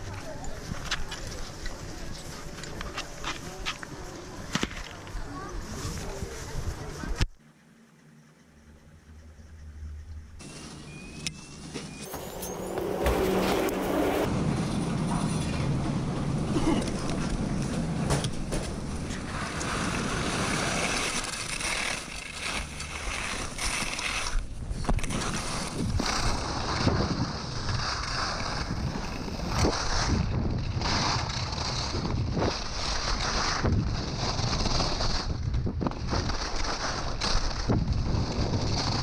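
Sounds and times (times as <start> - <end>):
skis scraping icy snow: 10.4 - 39.0
wind on microphone: 23.1 - 39.0.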